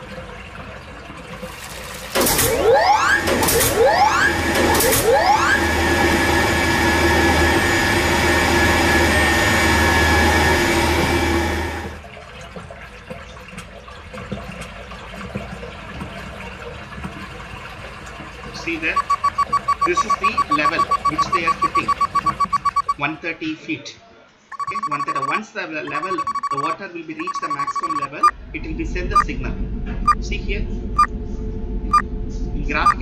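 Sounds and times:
pump whine rising: 2.2s - 12.0s, 18.8s - 23.0s, 24.5s - 28.3s
pump humming: 18.8s - 23.0s.

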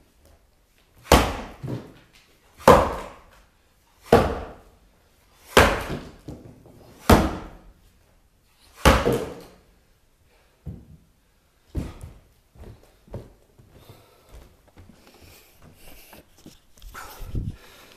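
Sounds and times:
axe chopping wooden log: 1.0s - 2.0s, 2.6s - 3.3s, 4.0s - 4.7s, 5.4s - 6.4s, 7.0s - 7.6s, 8.8s - 9.6s.

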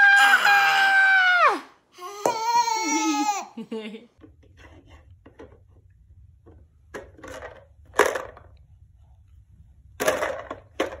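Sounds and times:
low steady hum: 3.8s - 11.0s
plastic blocks clicking and knocking: 6.5s - 8.6s, 10.0s - 11.0s.

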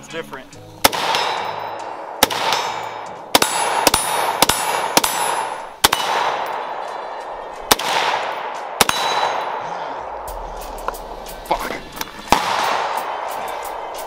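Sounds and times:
rifle shots: 0.8s - 9.7s, 12.3s - 14.0s
long ringing echo: 1.1s - 11.1s.

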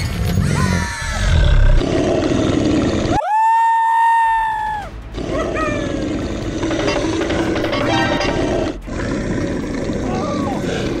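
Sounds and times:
upbeat background music: 5.0s - 9.2s
sound effects: 6.6s - 9.1s.

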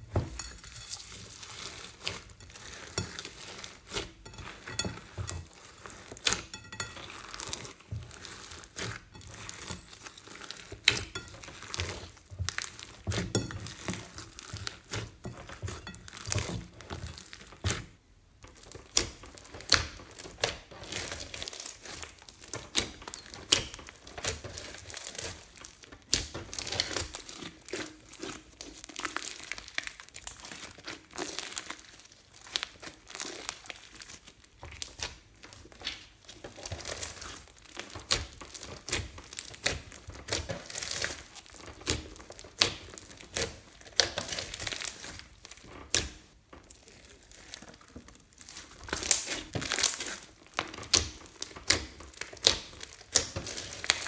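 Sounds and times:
slime crackling and popping: 0.0s - 54.0s
slime tearing: 18.5s - 54.0s.

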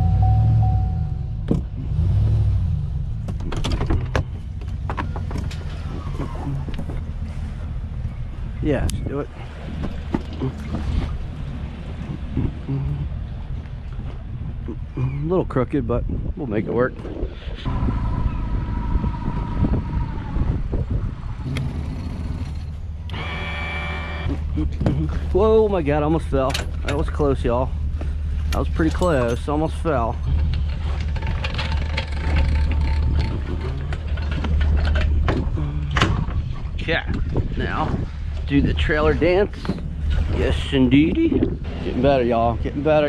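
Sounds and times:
outboard motor idling: 21.3s - 37.4s.

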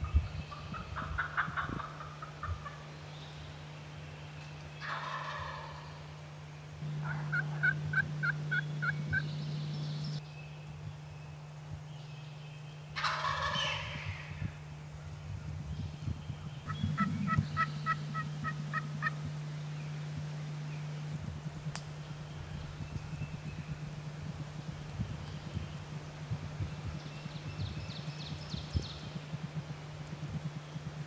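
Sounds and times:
turkey gobbling: 0.5s - 2.9s, 4.8s - 6.0s, 6.8s - 9.3s, 13.0s - 14.4s, 16.7s - 19.4s
hen turkey yelps: 4.8s - 5.8s, 7.0s - 9.2s, 13.0s - 14.3s, 16.7s - 19.2s.

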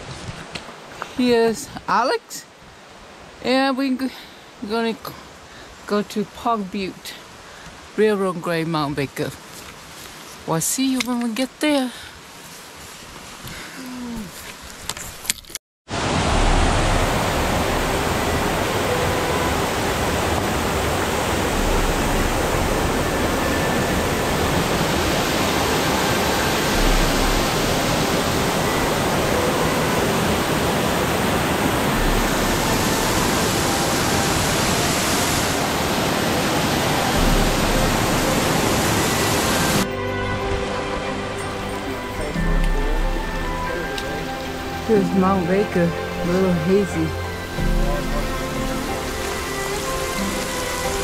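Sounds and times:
creek rushing over rocks: 15.9s - 51.0s.

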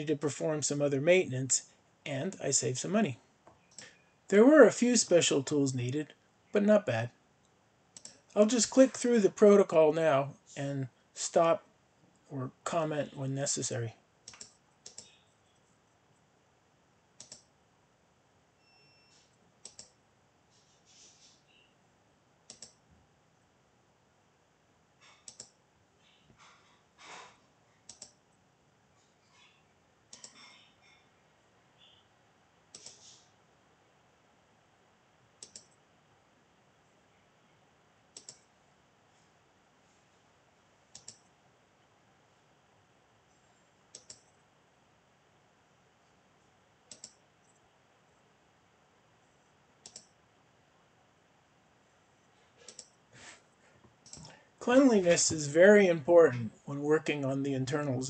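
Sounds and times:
faint steady hiss: 0.0s - 58.0s
computer mouse clicks: 7.9s - 8.3s, 14.2s - 15.2s, 17.2s - 17.5s, 19.1s - 20.0s, 22.5s - 22.8s, 25.0s - 25.6s, 27.8s - 28.2s, 30.1s - 30.7s, 32.7s - 33.3s, 35.4s - 35.8s, 38.1s - 38.5s, 40.9s - 41.3s, 43.3s - 44.4s, 46.9s - 47.6s, 49.8s - 50.2s, 52.6s - 53.0s, 53.9s - 54.4s.

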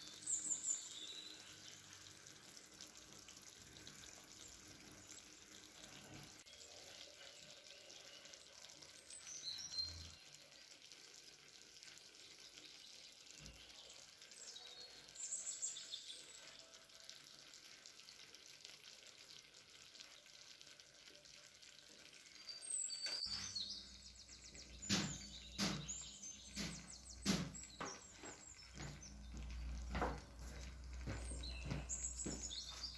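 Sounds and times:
faint high chirps: 21.1s - 32.9s
sharp knocks and clacks: 24.8s - 32.5s.

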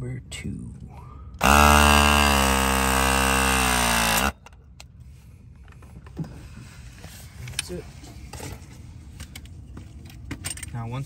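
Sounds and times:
crimping tool motor whine: 1.4s - 4.4s.

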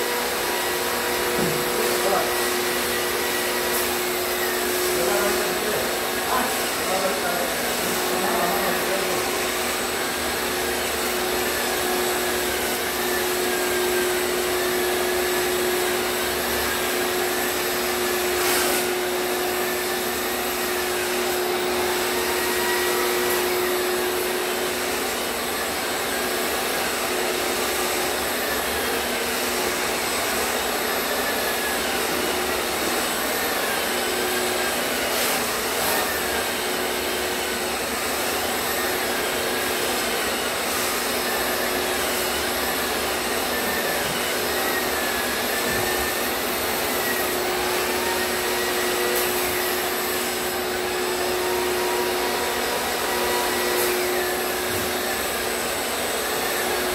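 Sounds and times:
pole sander whirring: 0.0s - 56.9s
shop vacuum hum: 0.0s - 56.9s.

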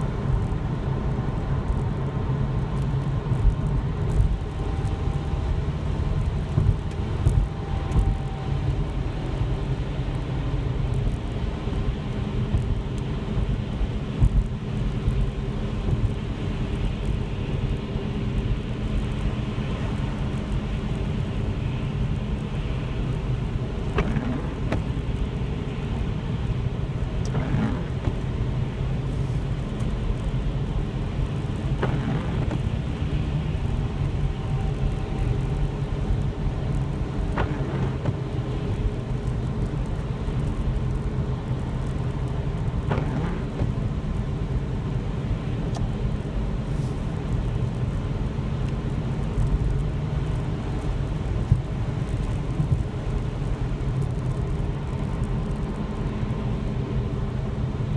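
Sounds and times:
car engine and tyre rumble: 0.0s - 57.9s
water hissing under tyres: 27.3s - 29.6s, 46.6s - 47.2s.

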